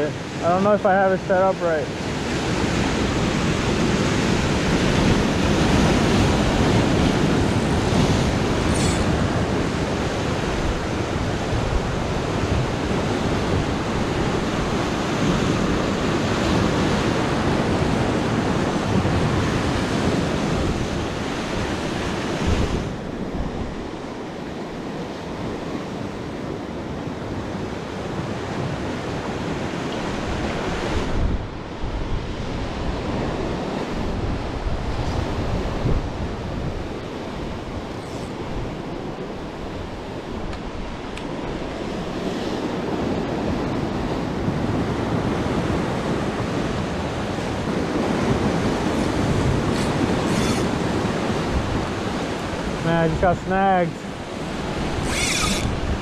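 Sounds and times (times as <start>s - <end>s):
ocean surf breaking on rocks: 0.0s - 56.0s
wind on microphone: 2.0s - 56.0s.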